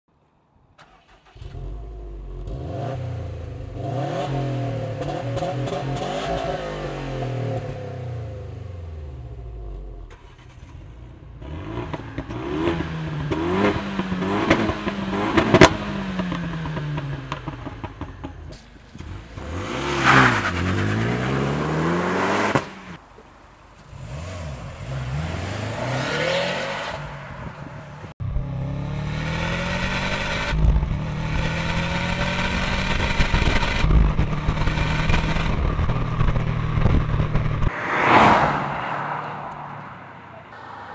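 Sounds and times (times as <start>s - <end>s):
car exhaust revving: 1.4s - 23.0s, 23.9s - 39.6s
car exhaust while driving: 23.9s - 38.2s.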